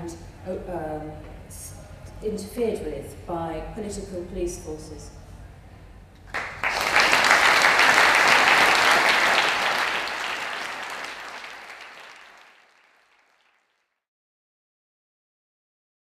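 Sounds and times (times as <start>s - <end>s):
audience applauding: 6.3s - 13.8s.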